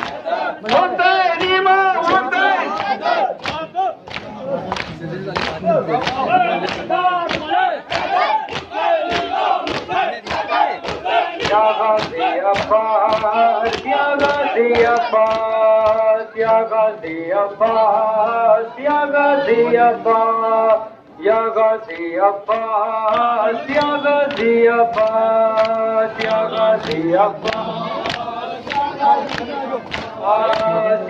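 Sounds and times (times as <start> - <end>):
men chanting a lament: 0.0 - 31.0
hands slapping chests: 2.8 - 16.6, 22.5 - 30.8.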